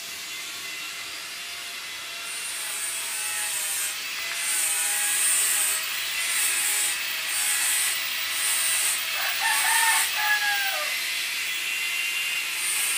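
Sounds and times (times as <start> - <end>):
rooster crowing: 9.1 - 11.0.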